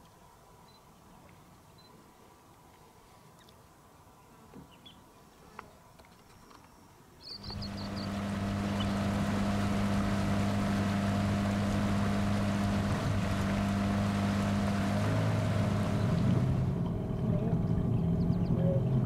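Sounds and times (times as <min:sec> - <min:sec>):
high chirps: 0:07.3 - 0:09.2
water rushing past hull: 0:07.4 - 0:16.9
outboard motor humming: 0:07.4 - 0:19.0.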